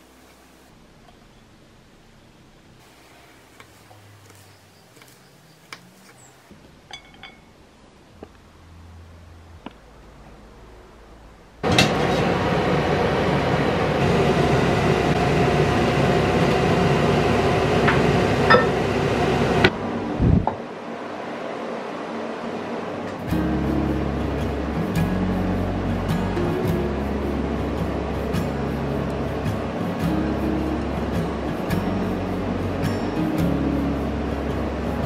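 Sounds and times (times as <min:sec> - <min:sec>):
metal lid clinks: 0:06.9 - 0:07.5
steamer pot boiling and steaming: 0:11.6 - 0:35.0.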